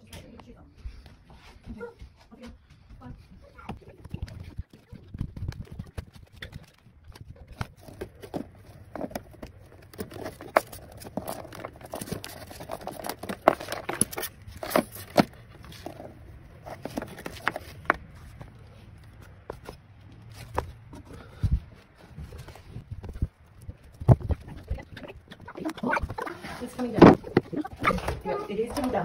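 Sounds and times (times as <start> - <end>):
insulation crinkling: 3.3 - 29.0.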